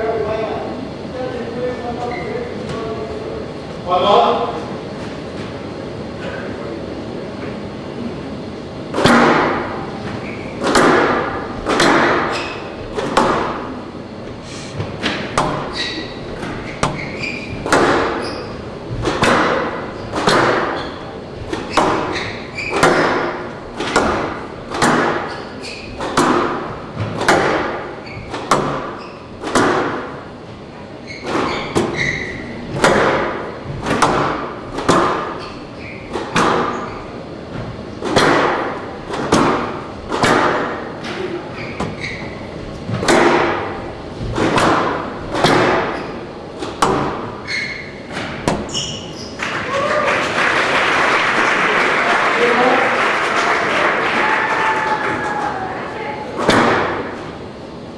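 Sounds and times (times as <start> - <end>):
squash racquet hits: 8.9 - 13.9, 14.8 - 30.4, 31.0 - 42.2, 42.8 - 49.1, 56.4 - 57.4
ball smacking off walls: 10.6 - 13.7, 16.4 - 18.2, 19.0 - 20.9, 21.5 - 25.4, 26.0 - 30.2, 32.7 - 35.4, 38.0 - 40.8.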